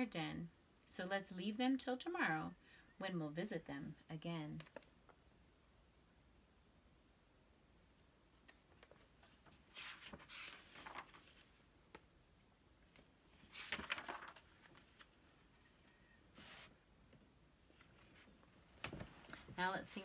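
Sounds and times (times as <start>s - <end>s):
paper pages rustling: 4.6s - 5.0s, 8.4s - 12.1s, 12.8s - 16.7s.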